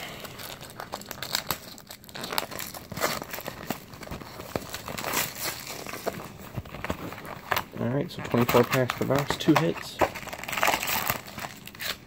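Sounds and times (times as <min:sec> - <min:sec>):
shrink wrap crinkling: 0:00.0 - 0:12.0
box being handled: 0:02.1 - 0:11.6.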